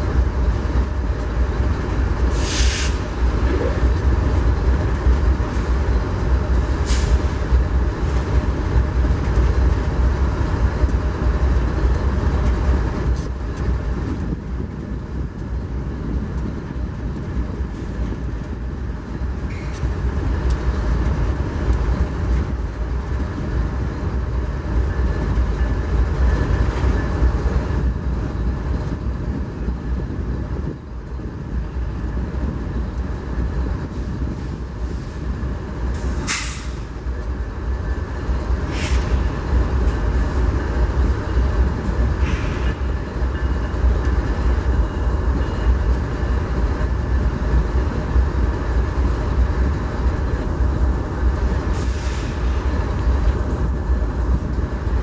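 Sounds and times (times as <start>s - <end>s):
diesel locomotive rumbling: 0.0s - 55.0s
air hiss: 2.3s - 3.1s.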